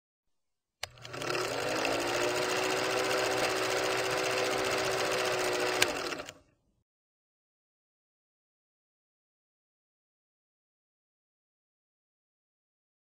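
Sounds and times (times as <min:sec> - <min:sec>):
small motor whirring and rattling: 0:00.8 - 0:06.4.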